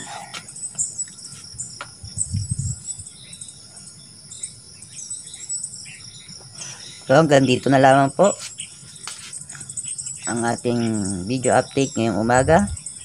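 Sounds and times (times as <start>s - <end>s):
bird chirps: 0.0s - 13.0s
crickets chirring: 0.0s - 13.0s
low rumble: 2.0s - 3.0s.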